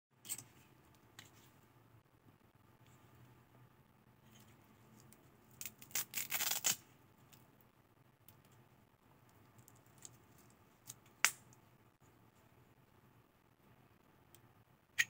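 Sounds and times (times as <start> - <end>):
velcro ripping open: 5.6 - 6.8.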